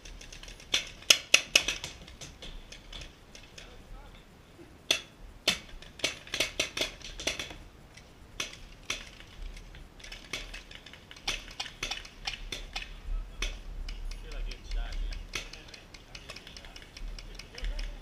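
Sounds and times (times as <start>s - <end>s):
paintball markers popping: 10.0s - 18.0s.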